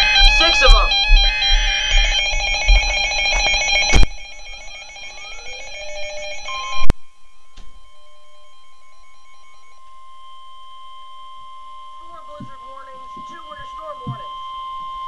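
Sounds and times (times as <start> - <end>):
steady alarm tone: 0.0 - 15.0
warbling electronic alarm beeping: 0.0 - 15.0.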